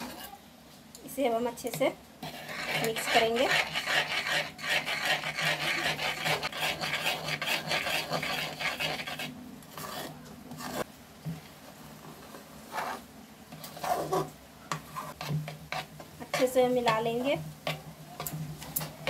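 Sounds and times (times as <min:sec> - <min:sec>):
metal spoon scraping metal pan: 0:02.2 - 0:10.9.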